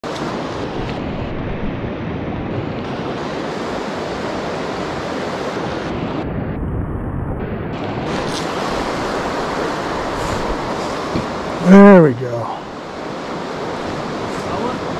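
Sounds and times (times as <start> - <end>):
creek water flowing over rocks: 8.1 - 14.9.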